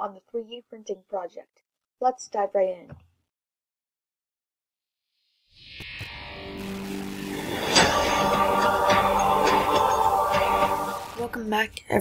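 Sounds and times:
sustained music chords: 0:06.1 - 0:11.3.

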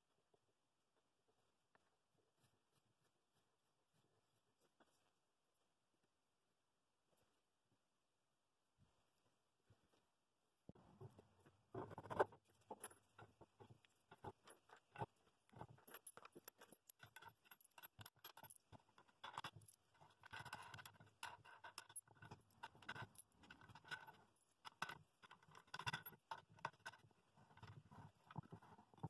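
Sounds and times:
metal washers clinking: 0:14.1 - 0:27.7.

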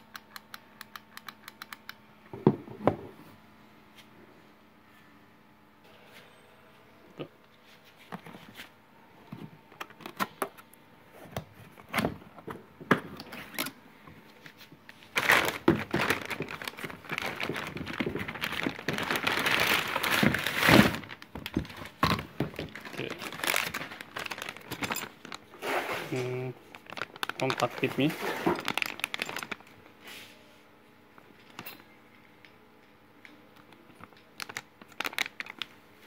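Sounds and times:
plastic bag crinkling: 0:15.0 - 0:30.0, 0:34.0 - 0:35.8.

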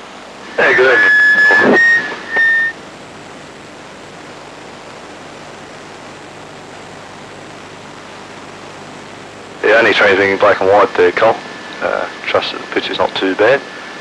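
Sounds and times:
radio static hiss: 0:00.0 - 0:14.0
whistle-like tone: 0:01.0 - 0:02.8.

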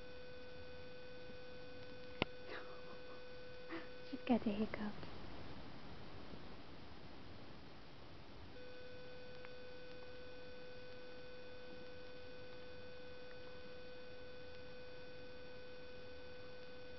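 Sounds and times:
faint background hiss: 0:00.0 - 0:16.9.

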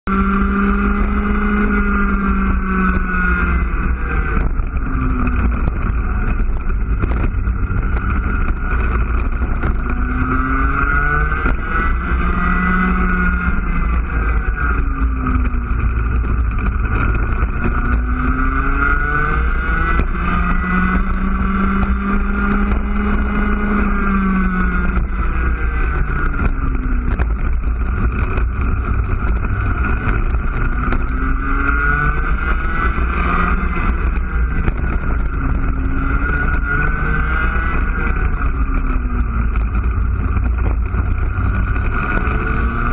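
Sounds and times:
kart engine revving: 0:00.1 - 0:42.9.

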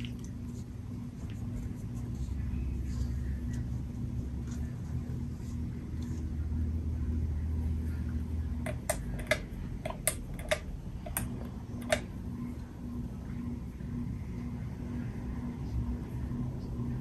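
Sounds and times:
ceiling fan humming: 0:00.0 - 0:17.0
sharp irregular clicks: 0:08.6 - 0:12.1.

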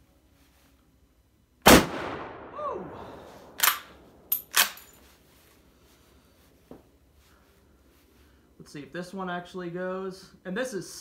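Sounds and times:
rifle shot with echo: 0:01.6 - 0:02.6
rifle bolt clacking: 0:03.6 - 0:04.9.

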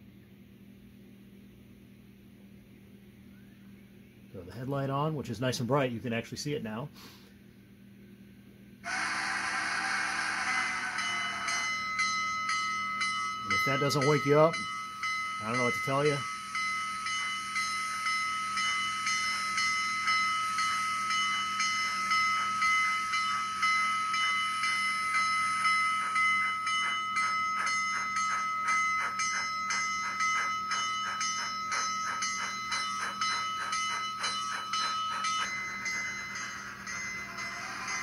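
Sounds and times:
model steam engine exhaust chuffs: 0:08.8 - 0:38.0
steady high tone: 0:08.8 - 0:38.0.

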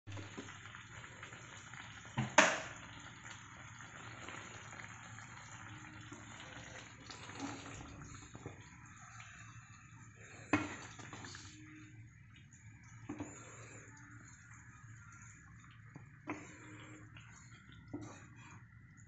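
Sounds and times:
curry simmering and bubbling: 0:00.1 - 0:19.0
wooden spatula stirring: 0:13.1 - 0:18.6.

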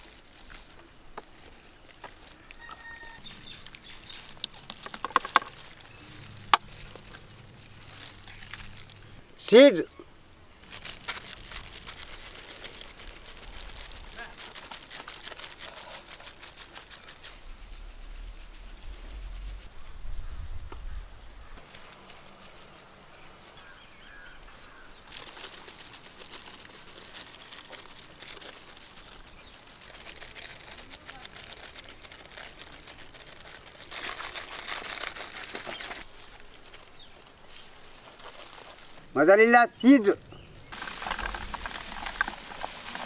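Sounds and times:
cheese grating on metal grater: 0:11.4 - 0:17.4
low rumble: 0:17.3 - 0:21.6.

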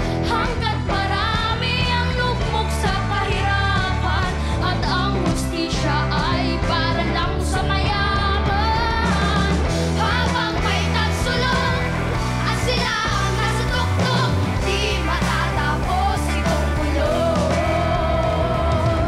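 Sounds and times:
children singing rock song: 0:00.0 - 0:19.0
rock band with bass and drums: 0:00.0 - 0:19.0.

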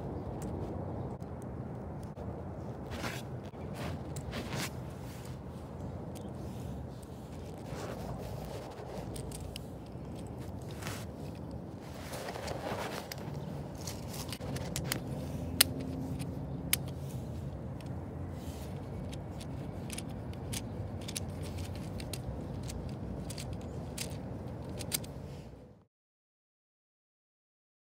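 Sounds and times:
plastic clicks and rattles: 0:17.8 - 0:25.1.

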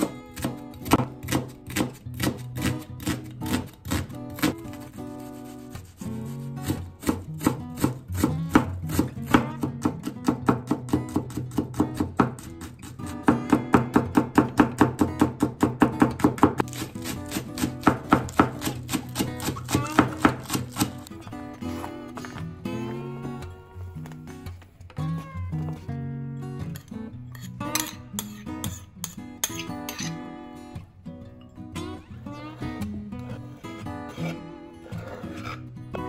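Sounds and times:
knife chopping on wooden board: 0:00.0 - 0:04.6, 0:13.2 - 0:21.1
acoustic guitar music: 0:00.0 - 0:36.0.

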